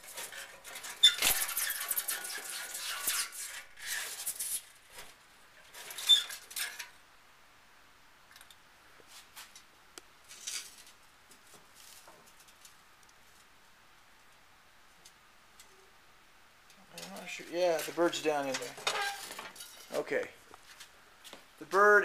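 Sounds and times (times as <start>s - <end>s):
scratching inside metal pipe: 0.0s - 7.0s
short squeaks: 0.2s - 4.5s, 5.8s - 6.8s, 18.8s - 19.8s.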